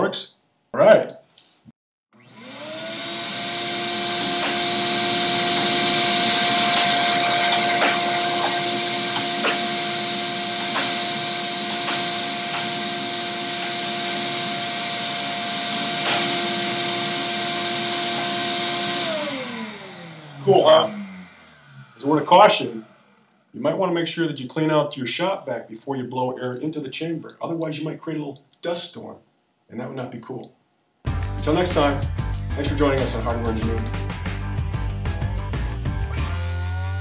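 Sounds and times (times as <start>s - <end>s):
shop vac whining: 2.2s - 24.0s, 31.1s - 37.0s.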